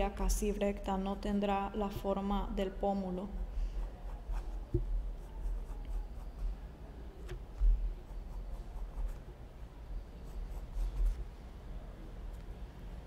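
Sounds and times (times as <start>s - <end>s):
pencil scratching on paper: 3.7s - 6.6s, 7.6s - 9.3s, 10.2s - 11.2s.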